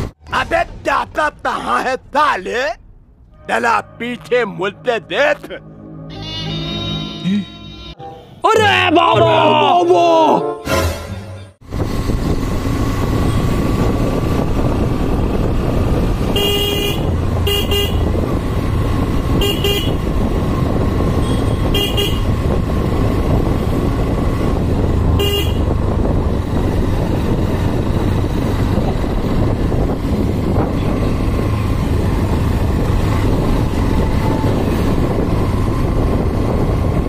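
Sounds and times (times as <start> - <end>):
wind noise: 11.6 - 37.0
motorcycle horn beeps: 16.3 - 18.1, 19.3 - 20.1, 21.2 - 22.3, 25.2 - 25.7.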